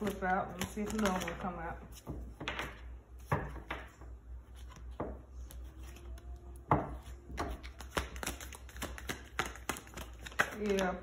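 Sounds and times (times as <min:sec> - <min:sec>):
cards being shuffled: 0:00.0 - 0:03.8, 0:04.4 - 0:11.0
card slaps: 0:00.6 - 0:01.4, 0:07.4 - 0:10.9.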